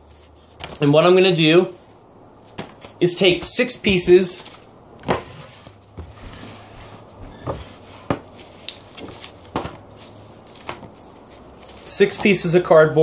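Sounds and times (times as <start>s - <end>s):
cardboard knocks and scuffs: 2.6s - 4.3s, 5.0s - 11.0s.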